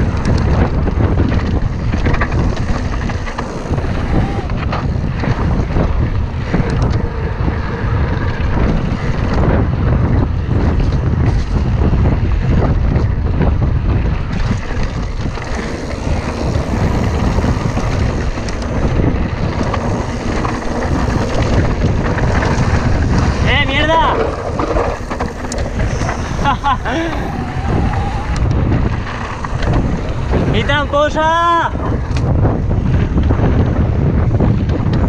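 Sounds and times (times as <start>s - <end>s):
bike knocks and rattles: 0.0s - 26.8s
wind rushing over microphone: 0.0s - 35.0s.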